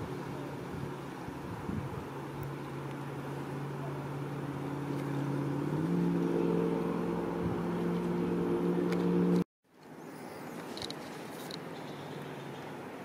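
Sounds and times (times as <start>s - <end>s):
low motor hum: 0.1s - 9.5s.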